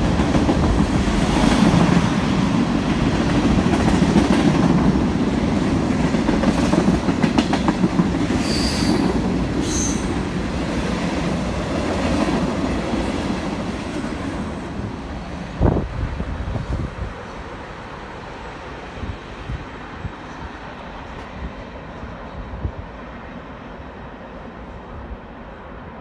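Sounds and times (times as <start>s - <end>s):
train wheels clicking over track: 0.0s - 14.7s.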